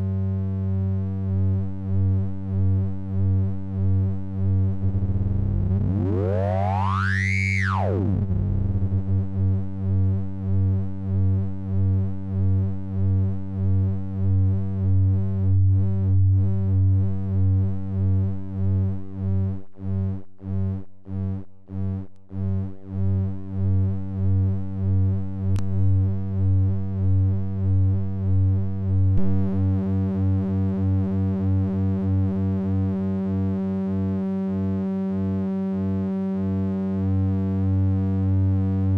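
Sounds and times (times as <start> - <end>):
low synthesizer tone: 3.9 - 10.2, 22.4 - 38.9.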